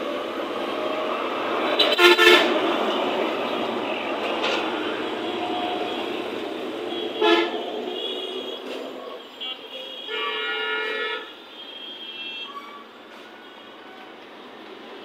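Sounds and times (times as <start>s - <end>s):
road traffic: 0.0s - 15.0s
vehicle horn tooting: 1.8s - 2.5s, 6.9s - 13.7s.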